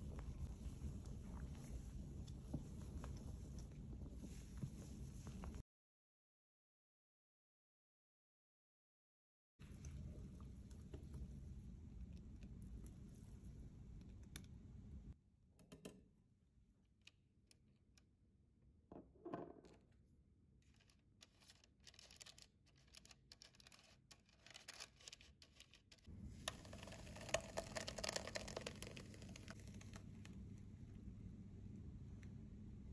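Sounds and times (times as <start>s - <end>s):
parchment paper scratching: 20.7s - 26.0s
batter pouring into pan: 26.4s - 29.6s.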